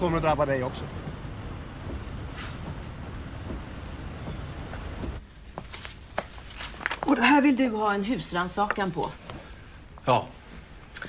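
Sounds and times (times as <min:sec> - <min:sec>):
car interior driving rumble: 0:00.0 - 0:06.8.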